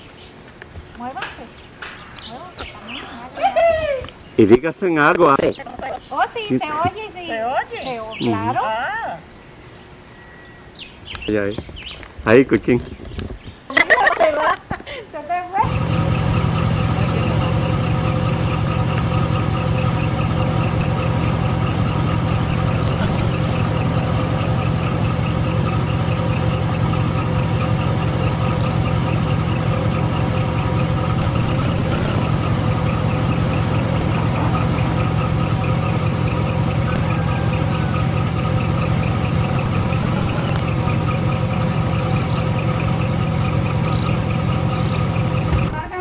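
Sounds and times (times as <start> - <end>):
motor droning: 15.6 - 45.8
steady tones: 15.6 - 46.0.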